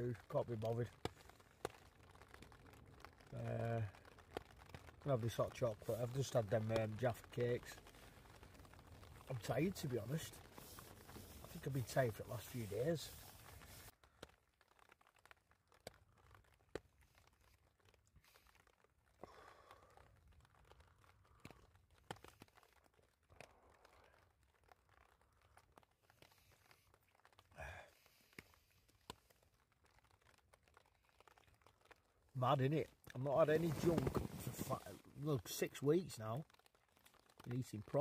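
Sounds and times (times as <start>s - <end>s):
faint rustling: 0.0s - 14.0s, 31.7s - 35.6s.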